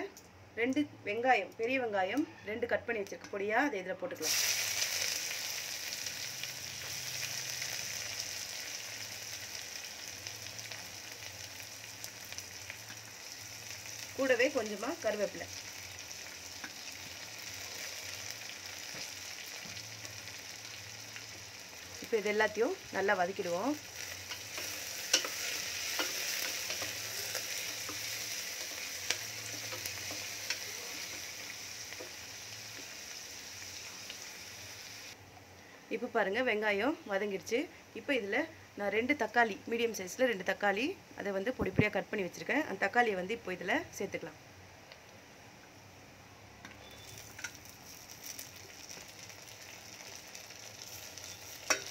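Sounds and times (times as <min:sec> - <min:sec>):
onions sizzling in hot oil: 0:03.0 - 0:35.2, 0:46.6 - 0:51.9.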